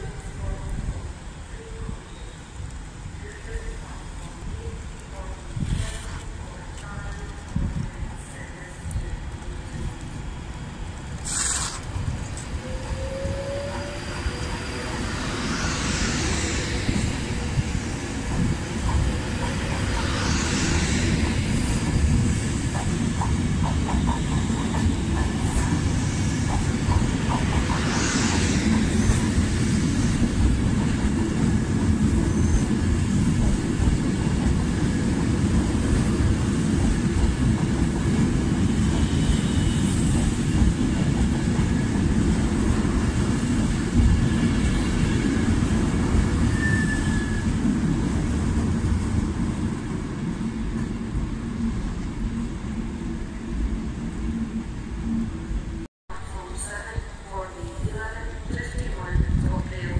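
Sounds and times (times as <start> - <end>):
electric train rumbling past: 0.0 - 59.9
high hisses: 11.2 - 12.0.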